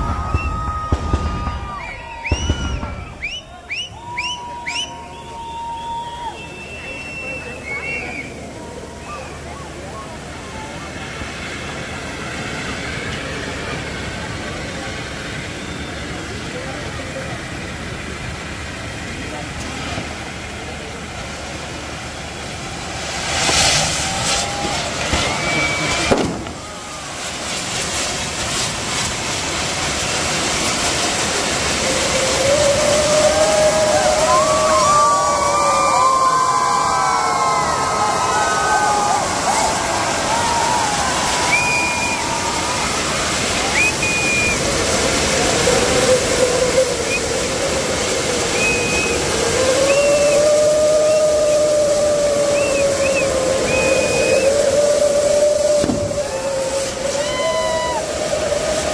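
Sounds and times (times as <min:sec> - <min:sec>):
sharp firework bang: 0:00.0 - 0:03.9, 0:23.2 - 0:26.9, 0:55.8 - 0:56.2
short high whistles: 0:00.0 - 0:08.4, 0:40.4 - 0:42.5, 0:43.6 - 0:44.7, 0:48.4 - 0:51.7, 0:52.5 - 0:58.1
fireworks hiss and crackle: 0:00.0 - 0:58.9
low rising whistle: 0:00.0 - 0:58.9.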